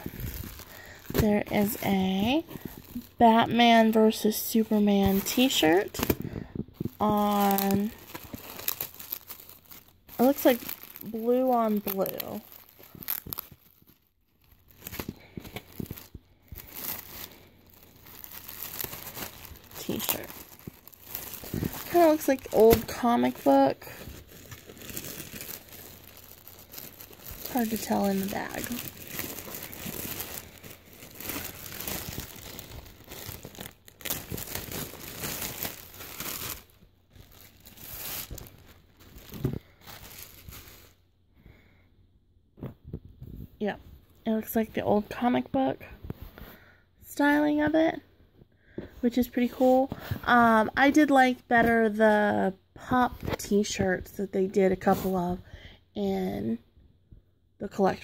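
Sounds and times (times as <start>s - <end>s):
plastic bag crinkling: 0.0s - 41.0s.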